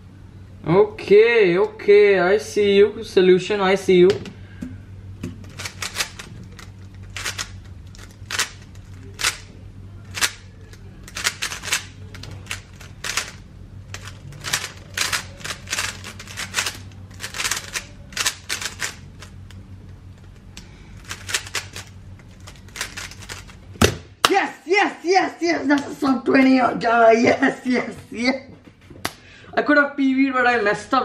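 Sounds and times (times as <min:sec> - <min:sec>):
steady low hum: 0:00.0 - 0:31.0
plastic puzzle cube clicking: 0:10.1 - 0:13.4, 0:14.0 - 0:19.3.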